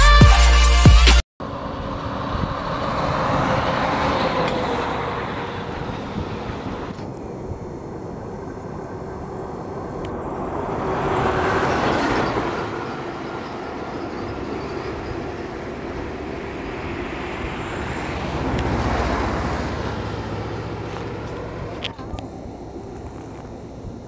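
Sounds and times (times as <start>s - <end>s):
vehicle road noise: 1.4s - 24.0s.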